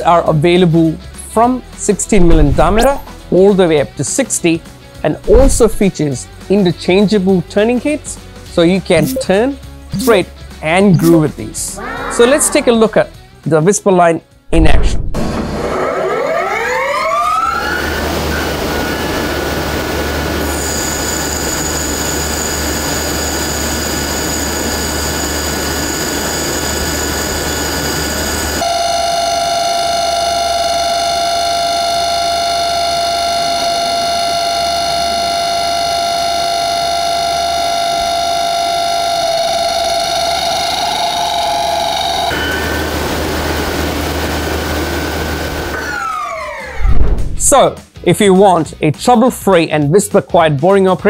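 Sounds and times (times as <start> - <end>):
lathe cutting hiss and whine: 17.8 - 28.7, 29.5 - 46.0.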